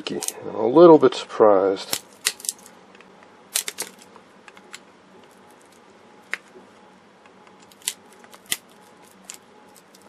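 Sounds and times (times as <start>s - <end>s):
pliers cracking capacitor casing: 1.8s - 2.7s, 3.5s - 4.8s, 7.5s - 10.0s.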